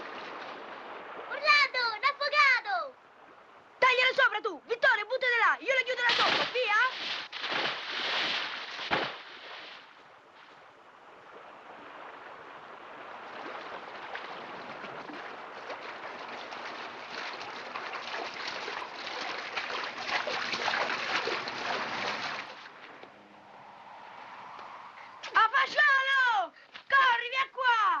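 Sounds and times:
swimmers splashing: 0:06.0 - 0:10.5, 0:11.2 - 0:26.9
diver splashing into water: 0:06.1 - 0:10.6, 0:11.2 - 0:23.0.

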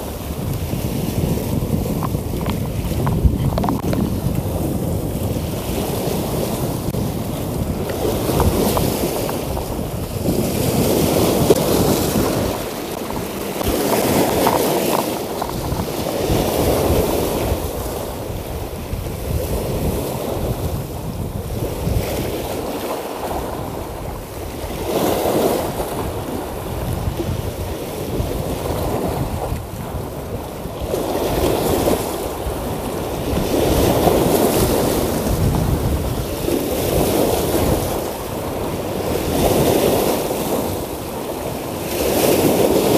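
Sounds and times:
sea waves washing over rocks: 0:00.0 - 0:42.9
wind buffeting microphone: 0:00.0 - 0:42.9.

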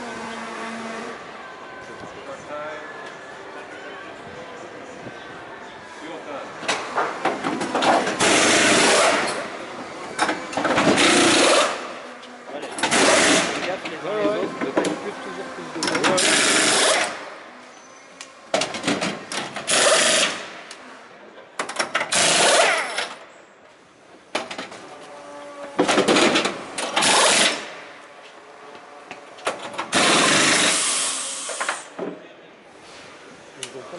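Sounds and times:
pneumatic wheel guns rattling: 0:07.4 - 0:09.5, 0:10.2 - 0:11.9, 0:12.8 - 0:13.7, 0:15.8 - 0:17.2, 0:18.6 - 0:20.5, 0:21.6 - 0:23.2, 0:25.8 - 0:27.8, 0:29.4 - 0:32.0.

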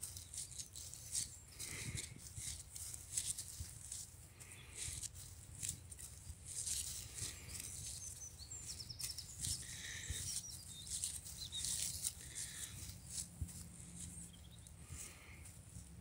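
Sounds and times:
rustling and crackling: 0:00.0 - 0:16.0
faint high bird chirps: 0:07.5 - 0:13.2.

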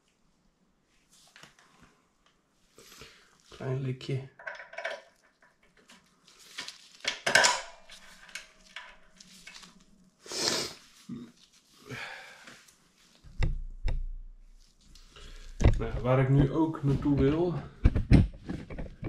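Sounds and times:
metal parts clinking and scraping: 0:04.4 - 0:05.5, 0:07.0 - 0:09.8.

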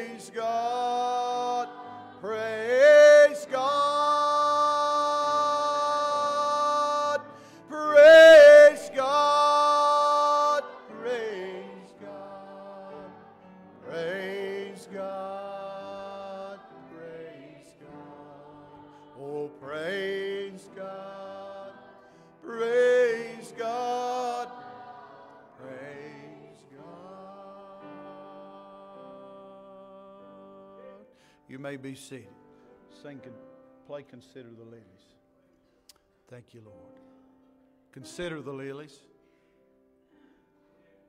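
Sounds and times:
person singing: 0:00.0 - 0:13.1.

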